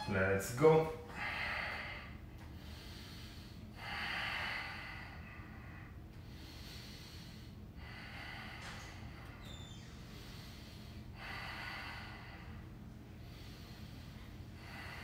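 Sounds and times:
man breathing heavily: 0.6 - 15.0.

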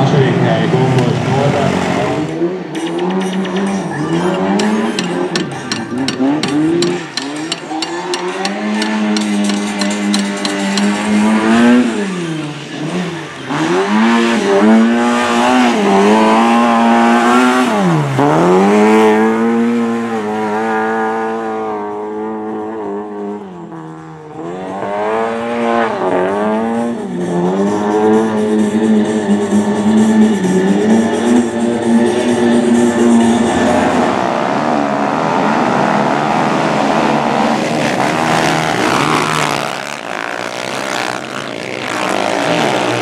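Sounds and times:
rally car engine at high revs: 0.0 - 43.0
car sliding on dirt: 24.0 - 43.0.

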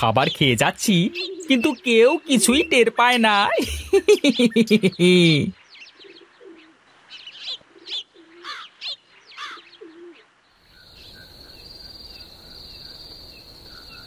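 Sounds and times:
birds chirping: 0.0 - 14.0
crickets chirring: 10.6 - 14.0.

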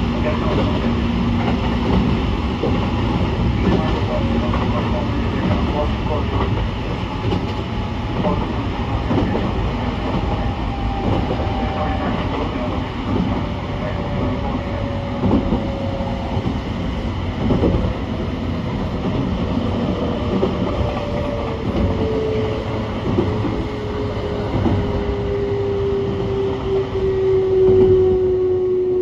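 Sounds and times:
rail rumble: 0.0 - 29.0
clacks over rail joints: 0.4 - 7.6, 8.2 - 13.6, 15.2 - 16.6, 17.4 - 18.3.

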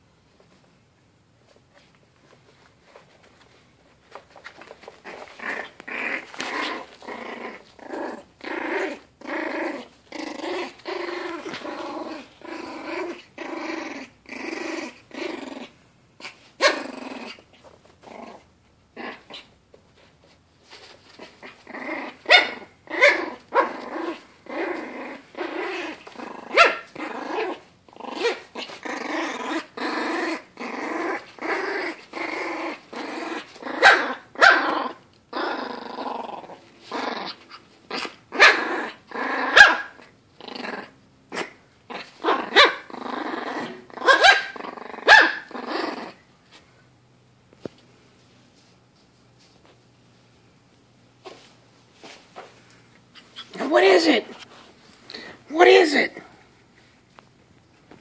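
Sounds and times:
puppy play-growling: 1.4 - 58.0
puppy yapping: 22.2 - 23.8, 25.5 - 27.6, 33.5 - 35.0, 37.2 - 40.1, 41.4 - 42.9, 43.6 - 45.6.

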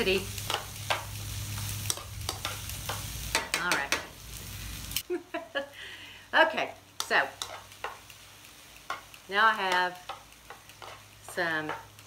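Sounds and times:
peppers sizzling in oil: 0.0 - 12.0
metal tongs scraping a pan: 0.1 - 4.0, 7.0 - 8.0, 8.8 - 12.0.

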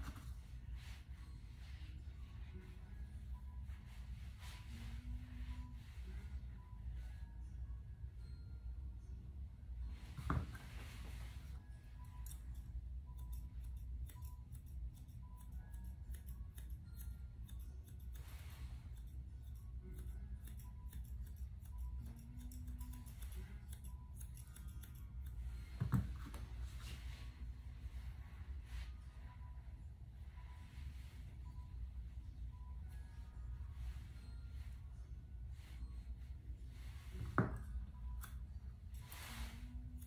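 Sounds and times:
scissors snipping: 12.1 - 25.4.

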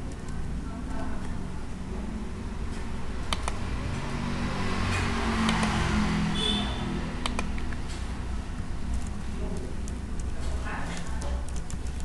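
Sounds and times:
mouse clicks and keystrokes: 0.0 - 0.4, 3.2 - 3.6, 4.8 - 6.6, 7.2 - 8.1, 8.8 - 10.4, 11.0 - 12.0.

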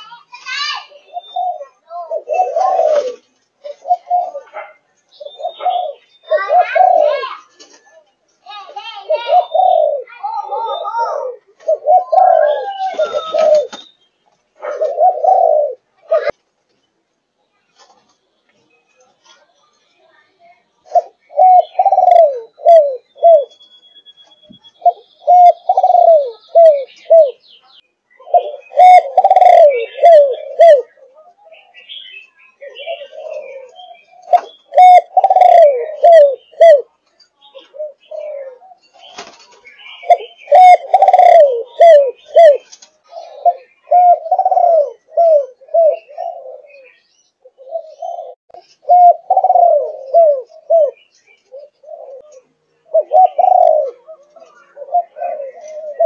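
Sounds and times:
dove cooing: 0.8 - 7.6, 8.6 - 13.8, 14.6 - 16.4, 20.8 - 23.6, 24.8 - 27.4, 28.2 - 56.0.

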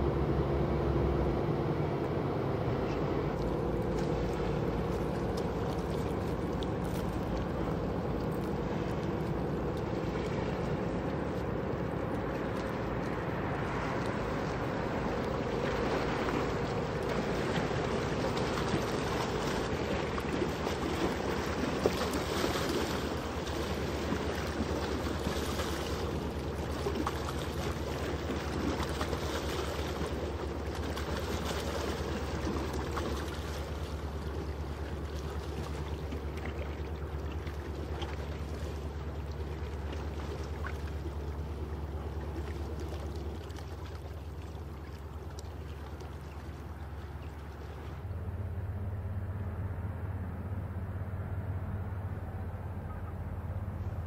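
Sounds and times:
ship engine drone: 0.0 - 54.0
water rushing along hull: 0.0 - 54.0.

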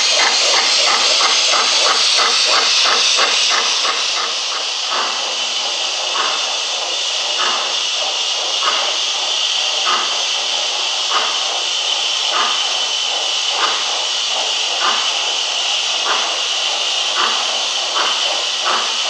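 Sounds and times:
soft regular locomotive beat: 0.0 - 19.0
steam hiss: 0.0 - 19.0.

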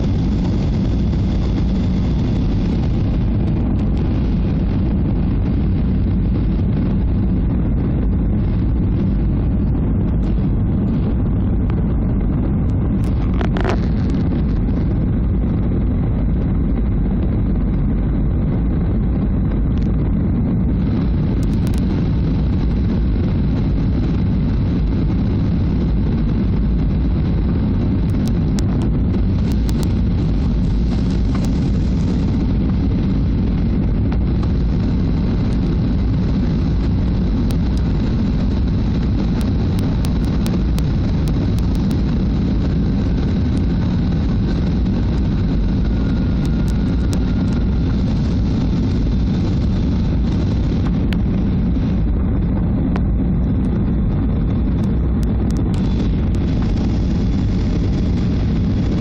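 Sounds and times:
airliner engines rumbling in cabin: 0.0 - 59.0
faint clicks: 28.1 - 30.0.

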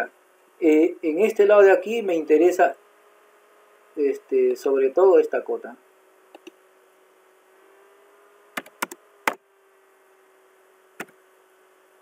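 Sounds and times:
faint steady hum: 0.0 - 12.0
computer mouse clicks: 6.3 - 6.6, 8.6 - 9.0.

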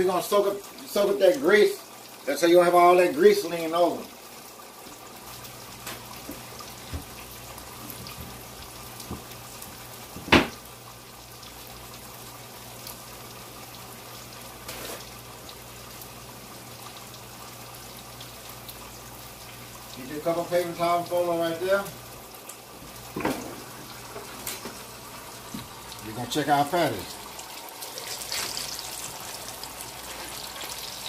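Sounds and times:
water running at a sink: 0.0 - 31.0.

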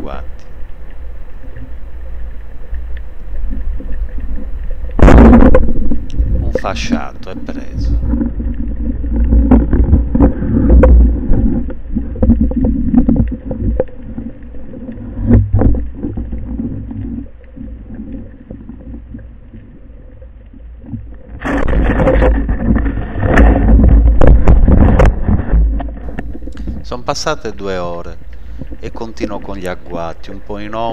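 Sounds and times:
water rushing underwater: 0.0 - 30.9
knocks and scrapes on speargun: 21.4 - 26.8.

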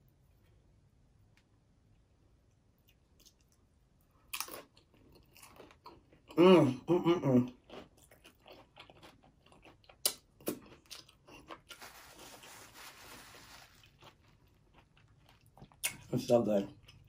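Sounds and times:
chewing crunchy food: 2.5 - 6.4, 7.4 - 17.0
paper napkin rustling: 11.7 - 14.0.

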